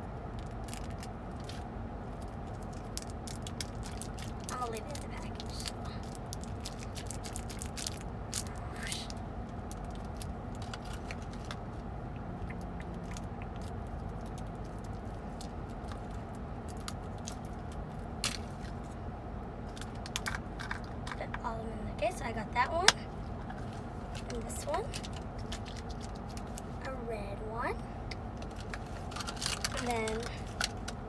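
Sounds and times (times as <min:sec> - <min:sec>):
plastic packaging crinkling: 0:00.4 - 0:11.6, 0:24.1 - 0:26.8, 0:28.4 - 0:31.0.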